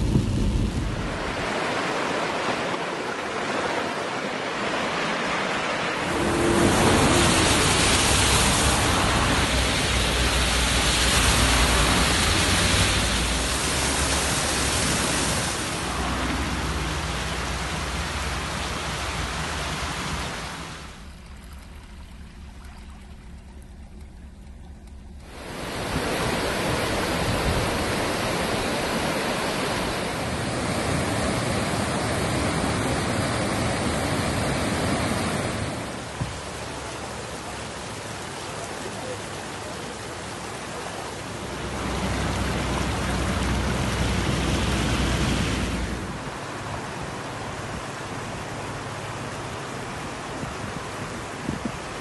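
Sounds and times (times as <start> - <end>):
water rushing over stones: 0.0 - 52.0
low rumble: 20.6 - 25.5.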